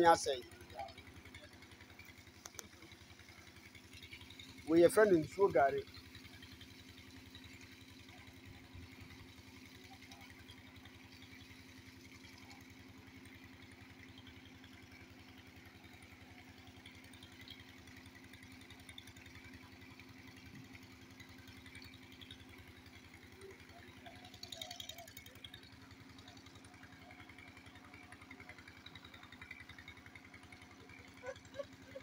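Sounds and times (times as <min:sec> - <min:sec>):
small engine chugging: 0:00.0 - 0:32.0.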